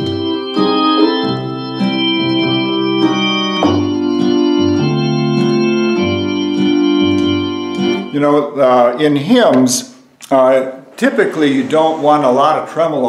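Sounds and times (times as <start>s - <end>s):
accordion organ chords: 0.0s - 9.2s.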